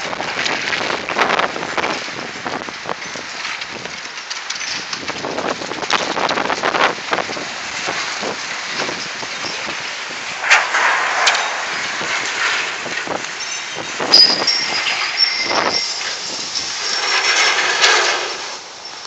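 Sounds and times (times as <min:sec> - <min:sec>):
strong wind gusting on microphone: 0:00.0 - 0:19.0
thin high whine: 0:10.3 - 0:18.0.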